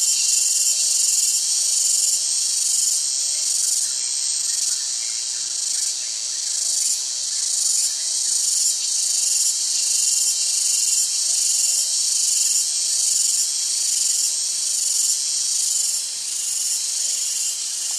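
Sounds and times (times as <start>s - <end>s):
shrill insect buzzing: 9.4s - 17.9s.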